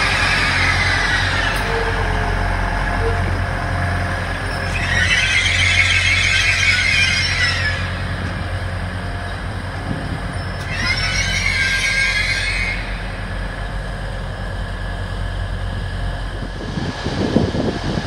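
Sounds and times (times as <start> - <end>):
train wheels squealing: 0.0 - 3.4, 4.3 - 8.6, 10.2 - 13.7
diesel train engine humming: 0.0 - 18.0.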